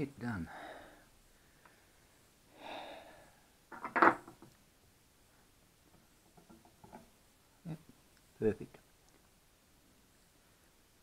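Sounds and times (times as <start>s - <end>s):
breathy exhale: 0.5s - 3.5s.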